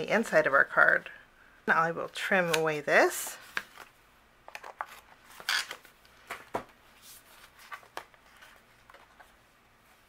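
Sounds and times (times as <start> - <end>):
paper rustling: 4.6 - 10.0.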